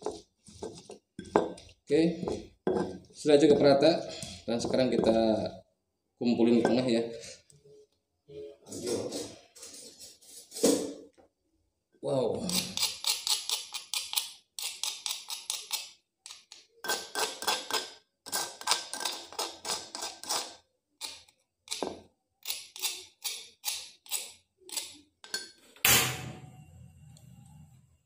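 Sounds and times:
metal spoon scraping stone mortar: 12.5s - 21.8s, 22.4s - 25.0s.

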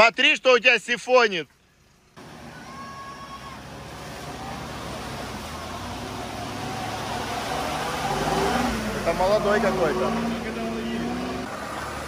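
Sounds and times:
tyre and road noise: 2.0s - 12.0s.

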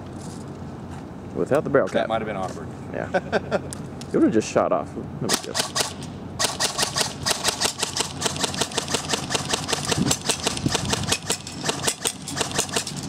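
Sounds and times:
airsoft rifle rapid firing: 5.3s - 13.0s.

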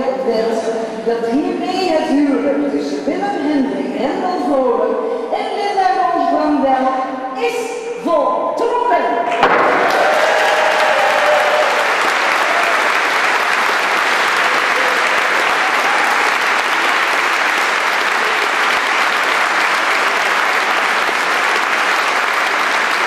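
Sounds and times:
guests applauding: 9.3s - 23.0s.

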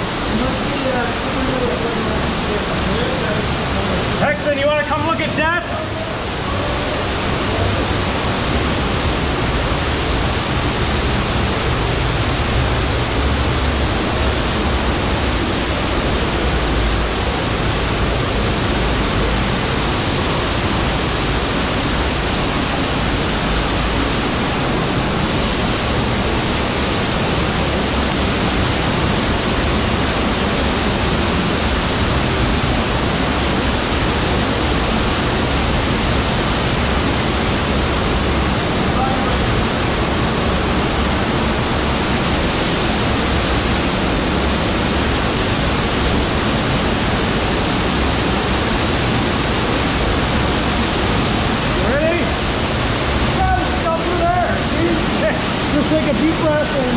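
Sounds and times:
stream rushing over rocks: 0.0s - 56.9s.

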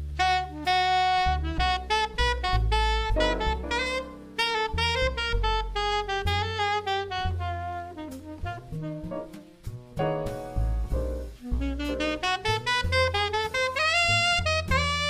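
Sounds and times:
bass: 0.0s - 15.0s
saxophone melody: 0.1s - 9.6s, 11.2s - 15.0s
drum strokes: 2.5s - 6.4s.

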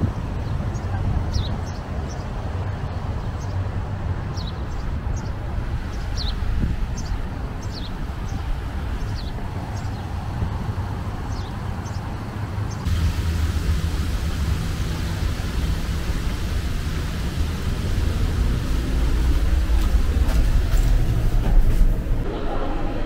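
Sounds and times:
steady low rumble: 3.8s - 23.0s
steady hiss: 12.8s - 22.2s.

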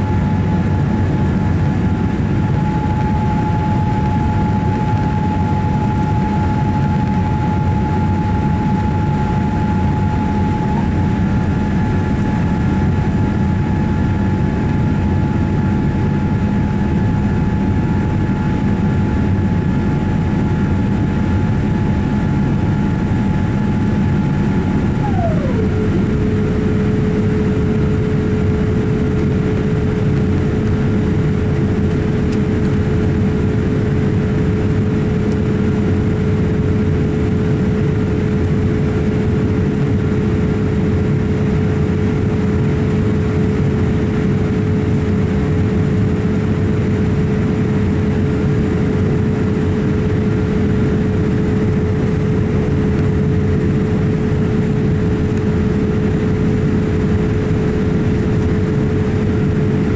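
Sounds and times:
thin whine: 0.0s - 30.3s
aircraft engine rumble: 0.0s - 59.9s.

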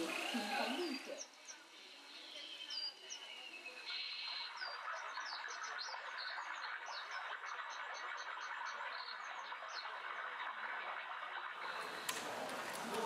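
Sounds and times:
birds chirping and singing: 0.0s - 9.9s.

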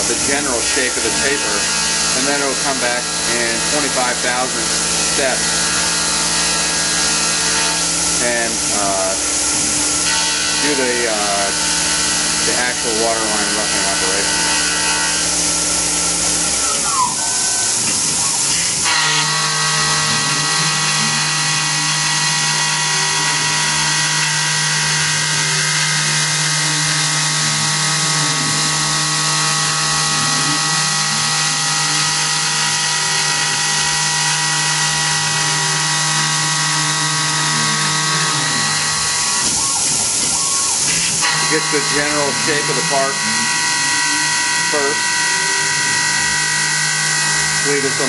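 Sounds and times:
mill spindle whining: 0.0s - 48.0s
coolant spray hissing: 15.0s - 18.9s, 39.0s - 43.7s.

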